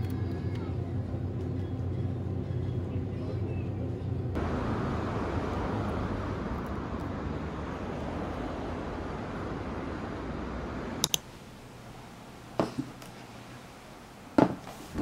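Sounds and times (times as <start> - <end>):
low traffic hum: 0.0 - 15.0
street noise: 0.0 - 15.0
sharp clicks: 11.0 - 11.3.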